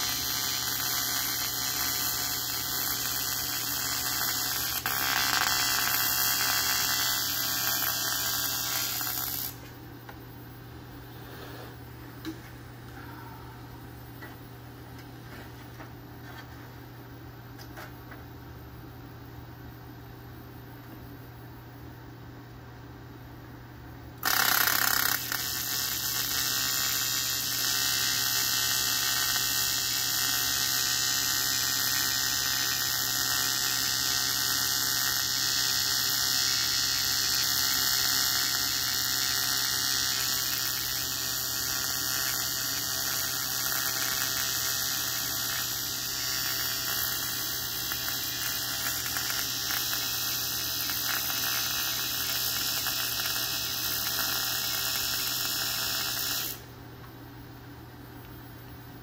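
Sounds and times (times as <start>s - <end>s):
welding arc buzzing hiss: 0.0s - 12.6s, 24.2s - 56.8s
constant low hum: 0.0s - 54.2s, 56.5s - 59.0s.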